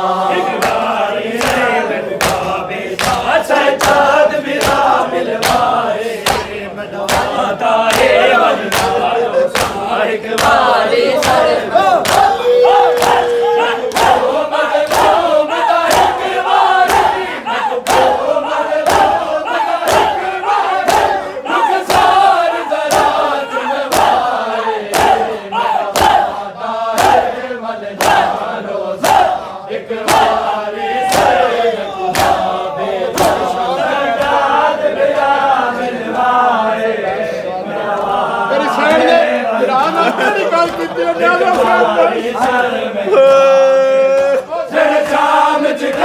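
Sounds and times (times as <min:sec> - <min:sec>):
men chanting in unison: 0:00.0 - 0:46.0
hands slapping chests: 0:00.6 - 0:25.3, 0:25.9 - 0:27.4, 0:28.0 - 0:28.4, 0:29.0 - 0:34.5.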